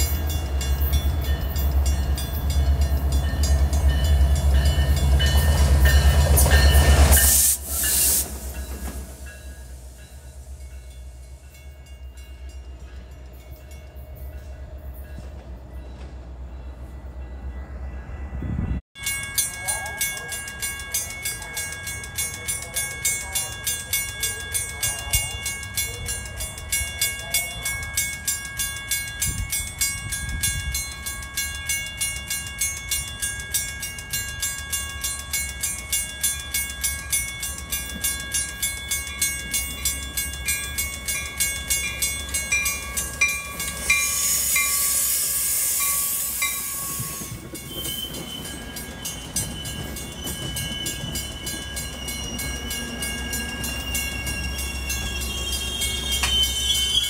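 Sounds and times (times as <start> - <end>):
railroad crossing bells: 0.0 - 57.0
train rumble: 0.0 - 57.0
loud train hiss: 6.8 - 11.1, 43.1 - 47.5.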